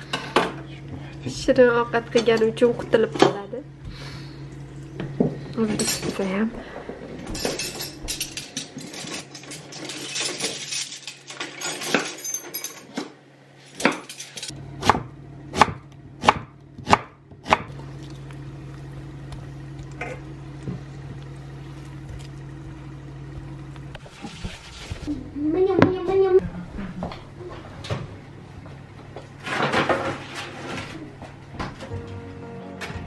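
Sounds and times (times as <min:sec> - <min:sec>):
steady low hum: 0:00.0 - 0:09.3, 0:14.4 - 0:32.9
knife cutting onion on board: 0:14.8 - 0:17.7
sharp knife chops: 0:14.8 - 0:17.7.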